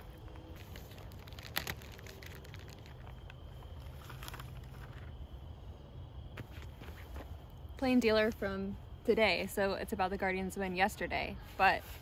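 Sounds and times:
newspaper sheets rustling: 0:00.0 - 0:05.1.

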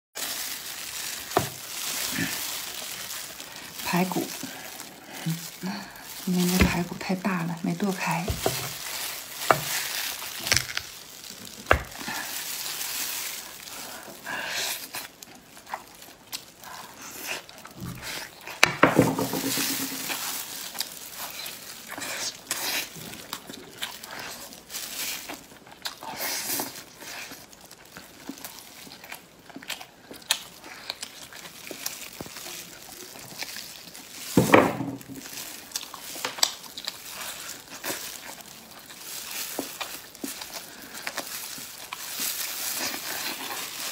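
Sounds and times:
plastic gloves crinkling: 0:00.2 - 0:43.9
meat tearing off bone: 0:08.3 - 0:13.5
chewing and mouth sounds: 0:19.6 - 0:34.3, 0:35.2 - 0:43.9.

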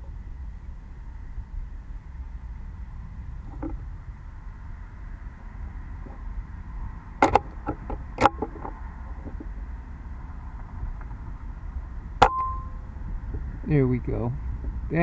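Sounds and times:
brief ringing tone: 0:12.3 - 0:12.8.

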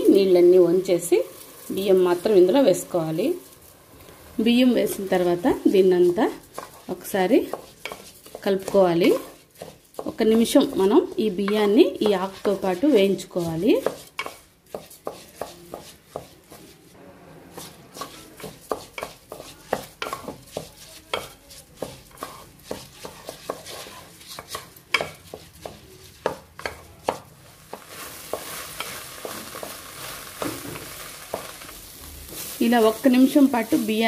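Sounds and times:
rice sizzling: 0:00.0 - 0:34.0
spatula scraping metal pot: 0:06.0 - 0:16.6, 0:17.6 - 0:27.3.

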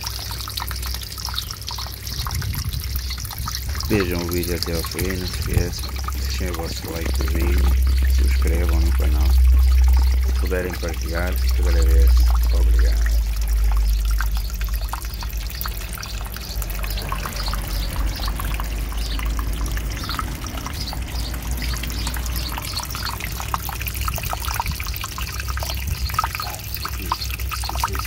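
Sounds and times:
water splashing and trickling: 0:00.0 - 0:28.0
low rumble: 0:04.9 - 0:26.3.

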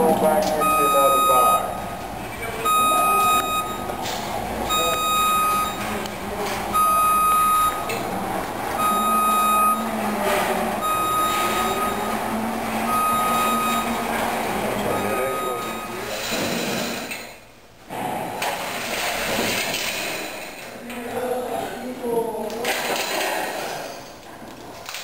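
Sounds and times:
lift alarm beeping: 0:00.5 - 0:01.9, 0:02.6 - 0:04.0, 0:04.6 - 0:06.0, 0:06.7 - 0:16.3.

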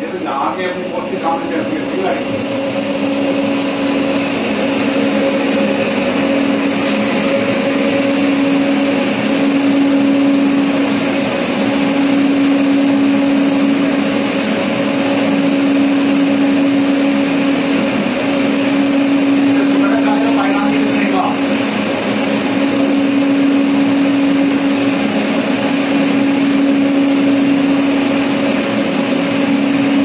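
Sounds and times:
low mechanical hum: 0:00.0 - 0:30.0.

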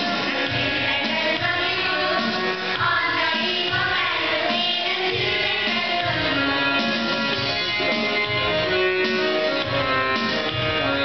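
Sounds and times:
children's choir singing: 0:00.0 - 0:08.8
instrumental accompaniment: 0:00.0 - 0:11.0.

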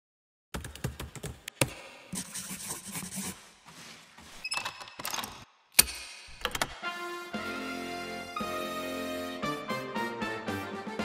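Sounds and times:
sharp clicks and knocks: 0:04.6 - 0:06.8.

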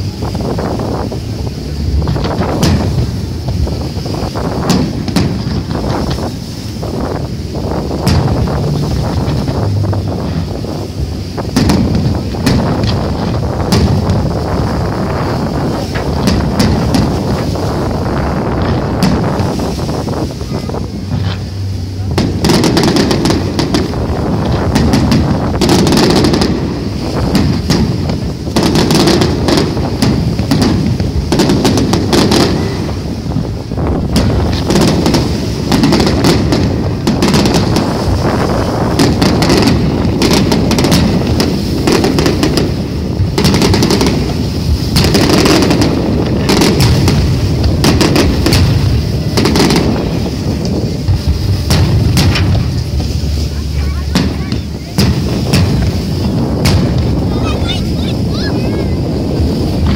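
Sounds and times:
fireworks bursting and crackling: 0:00.0 - 0:59.9
low rumble: 0:00.0 - 0:59.9.

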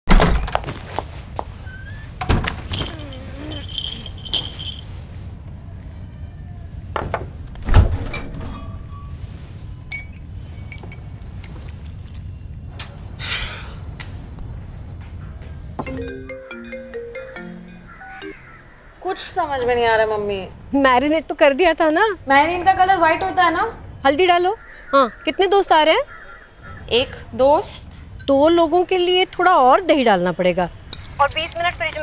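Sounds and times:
refrigerator door opening: 0:07.6 - 0:08.5
marimba-like music notes: 0:15.8 - 0:18.4.

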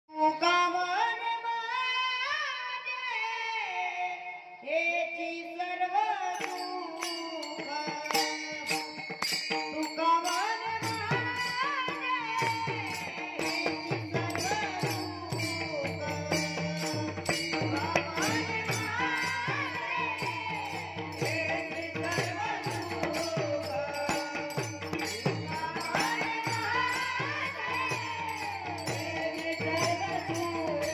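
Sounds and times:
boy singing devotional song: 0:00.1 - 0:30.9
hand cymbals clashing: 0:06.3 - 0:30.9.

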